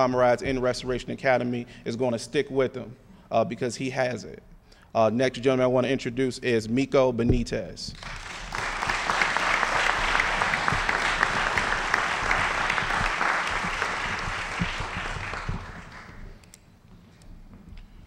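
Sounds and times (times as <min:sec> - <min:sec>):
audience applauding: 0:08.0 - 0:16.4.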